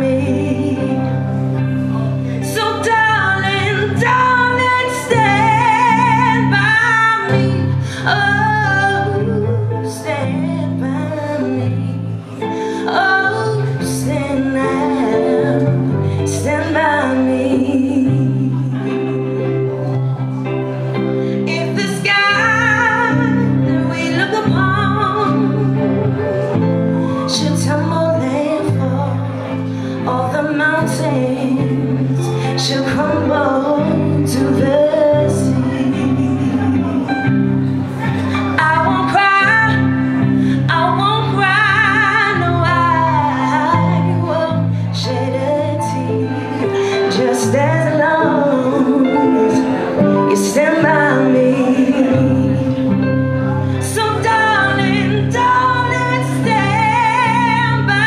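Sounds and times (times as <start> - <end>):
woman singing: 0.0 - 20.2, 21.2 - 58.0
rock band playing: 30.8 - 41.4.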